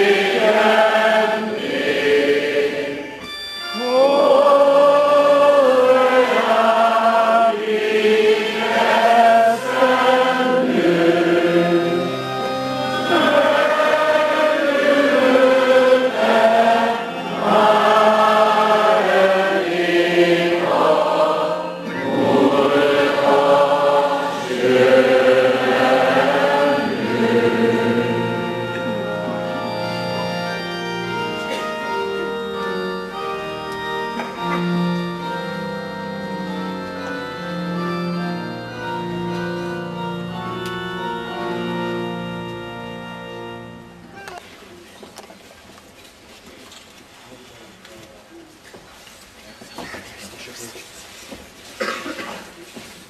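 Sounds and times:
choir singing chant: 0.0 - 3.2, 3.8 - 29.8
organ chords: 0.0 - 44.2.

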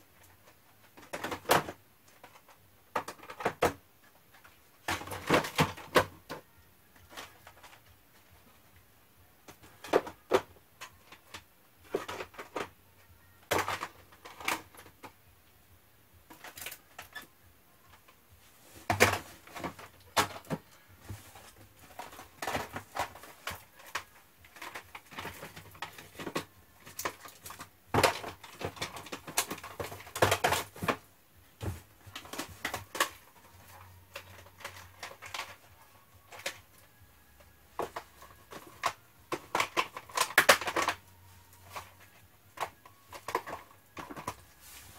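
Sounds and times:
plastic cassette cases clacking: 21.4 - 31.0, 32.1 - 44.5.

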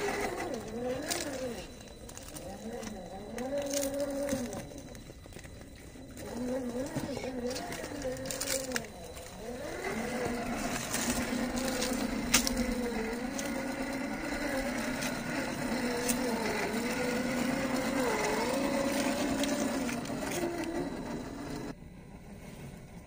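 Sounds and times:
electric motor whining: 0.0 - 23.0.

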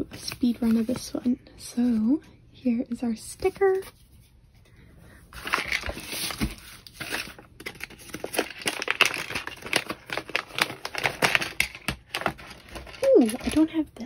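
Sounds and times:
packaging pouch crinkling and tearing: 5.4 - 13.6
sharp crinkles and clicks: 6.8 - 13.8.

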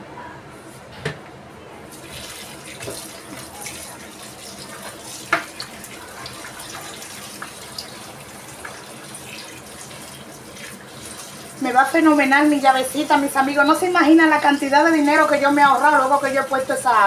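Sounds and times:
tap water splashing into bowl: 2.0 - 3.9, 4.8 - 7.9.

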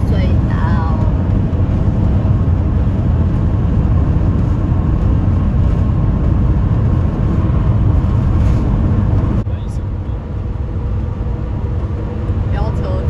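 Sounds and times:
road and engine noise in van: 0.0 - 13.0.

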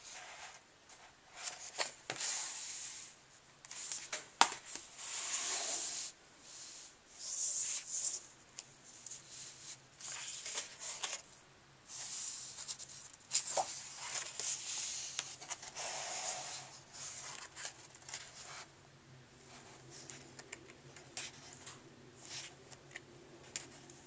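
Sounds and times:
paper pages rustling and flapping: 10.0 - 11.3, 12.6 - 15.9.

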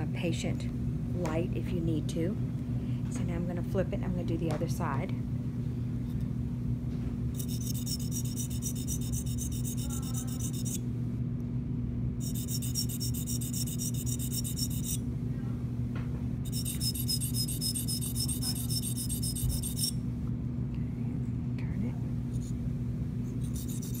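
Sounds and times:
steady low hum: 0.0 - 24.0
sharpening stone rasping on metal: 7.4 - 10.8, 12.2 - 15.0, 16.5 - 20.0, 23.4 - 24.0.

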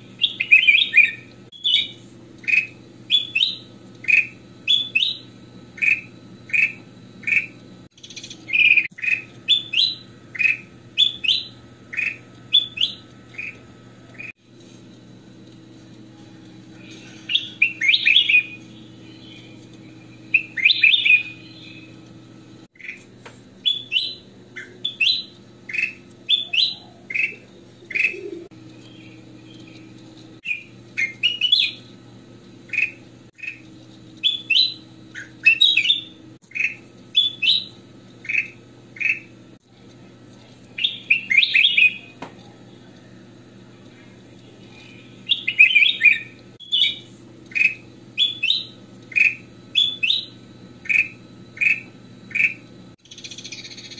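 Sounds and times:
steady low hum: 0.0 - 53.9
bird singing whistled notes: 0.2 - 13.6, 17.3 - 22.0, 23.6 - 29.7, 30.4 - 31.9, 34.2 - 39.3, 40.8 - 42.2, 44.7 - 53.9.

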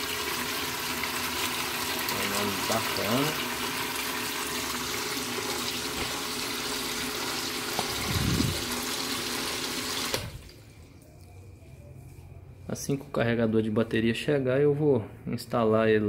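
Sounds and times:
submersible pump humming: 2.8 - 11.4.

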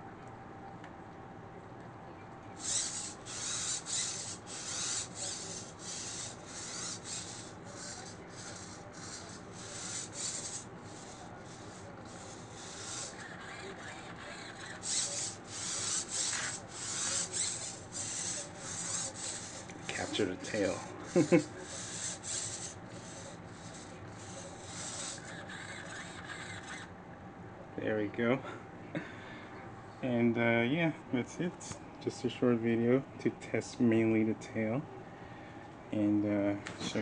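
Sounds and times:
robot servos rasping: 2.6 - 26.9.

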